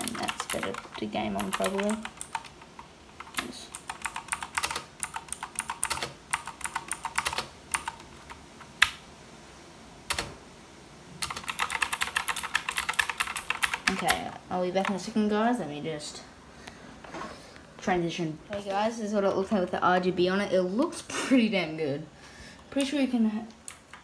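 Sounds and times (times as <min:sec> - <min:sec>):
mechanical keyboard typing: 0:00.0 - 0:08.9, 0:10.1 - 0:10.3, 0:11.2 - 0:14.2, 0:14.8 - 0:15.1.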